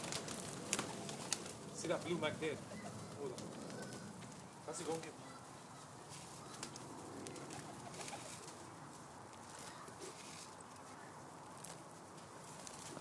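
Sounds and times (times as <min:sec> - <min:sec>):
pigeons cooing: 0:00.0 - 0:08.8.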